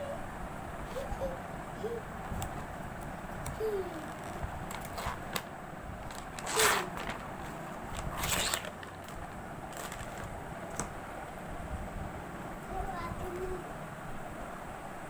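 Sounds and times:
plastic tray crackling: 4.0 - 10.9.

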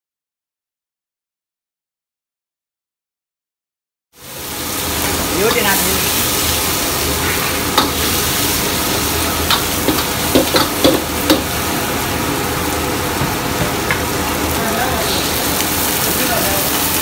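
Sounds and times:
vegetables sizzling in a wok: 4.2 - 17.0
metal ladle scraping a wok: 5.5 - 11.4.

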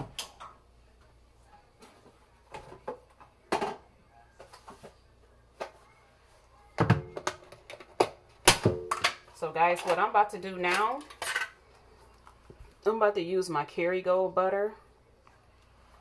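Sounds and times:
kitchen knocks and bumps: 6.8 - 9.2.

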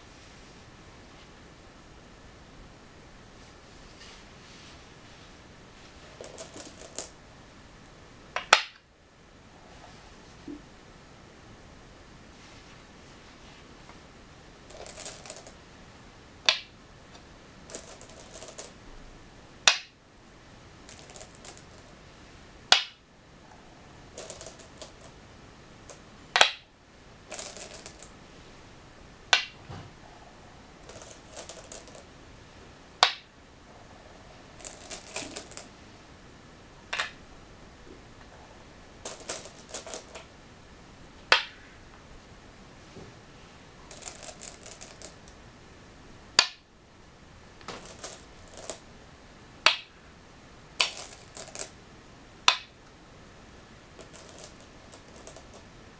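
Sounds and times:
stones rattling in bowl: 6.0 - 7.2, 14.6 - 15.6, 17.6 - 18.8, 20.8 - 21.9, 24.1 - 25.2, 27.2 - 28.2, 30.7 - 32.1, 34.5 - 35.7, 39.0 - 40.3, 43.8 - 45.4, 47.6 - 48.8, 50.8 - 51.7, 54.0 - 55.7
stones clicking on wooden board: 6.1 - 7.2, 8.4 - 8.8, 14.7 - 15.6, 16.4 - 16.8, 17.7 - 18.8, 19.6 - 20.0, 20.9 - 21.8, 22.7 - 23.0, 24.1 - 25.2, 25.9 - 26.7, 27.3 - 28.1, 29.3 - 29.6, 30.8 - 32.1, 33.0 - 33.3, 34.6 - 35.7, 39.0 - 40.3, 41.3 - 41.6, 43.9 - 45.4, 46.4 - 46.6, 47.6 - 48.8, 49.6 - 49.9, 50.8 - 51.7, 52.5 - 52.8, 54.0 - 55.6.

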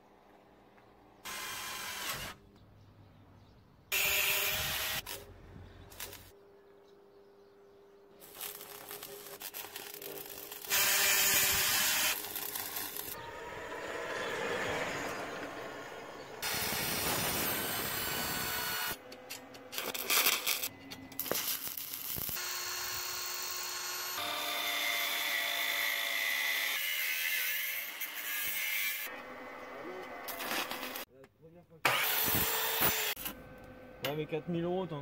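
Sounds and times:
small electric car driving past: 13.2 - 16.4.

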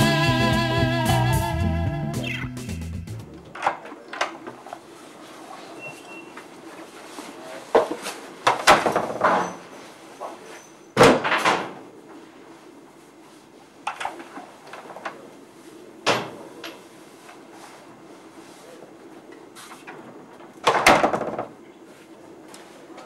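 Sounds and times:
door opening and shutting: 20.6 - 21.6.

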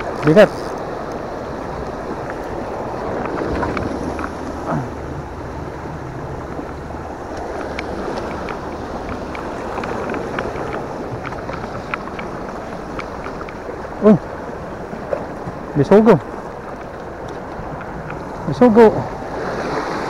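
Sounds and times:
waves washing against rocks: 0.0 - 20.0
wind buffeting microphone: 0.0 - 20.0
light clicks: 7.3 - 13.7.

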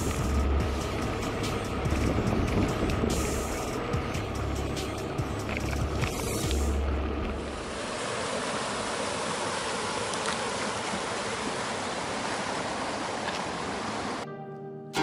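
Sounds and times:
river rushing over rocks: 4.9 - 14.2.

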